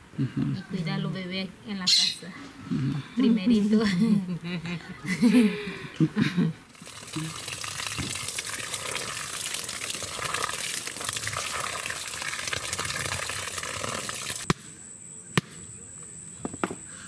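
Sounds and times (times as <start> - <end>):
women's voices: 0.4 - 2.5, 3.2 - 5.6.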